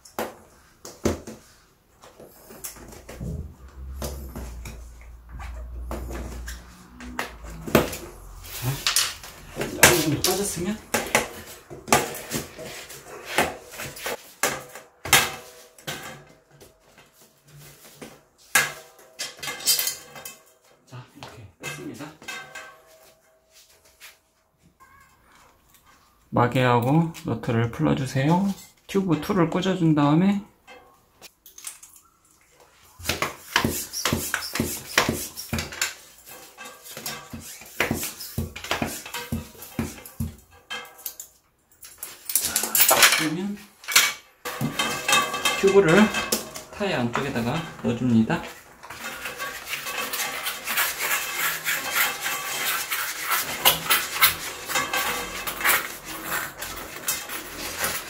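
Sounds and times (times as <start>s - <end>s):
tyre scraping against rim: 33.0s - 40.5s, 44.5s - 58.0s
hand pump strokes: 48.9s - 58.0s.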